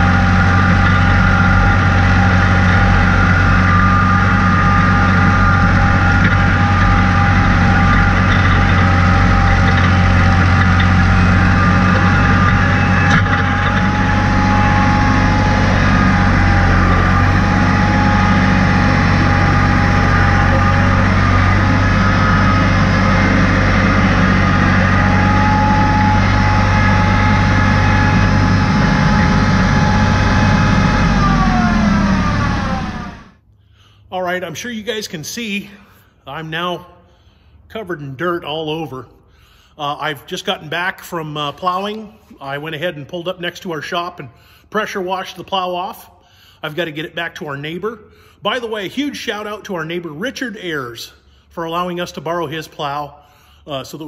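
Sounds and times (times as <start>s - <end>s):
tractor engine running: 0.0s - 33.4s.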